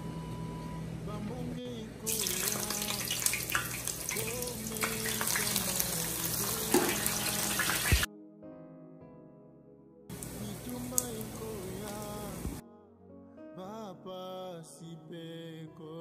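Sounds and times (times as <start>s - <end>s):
food sizzling in oil: 2.1s - 8.1s.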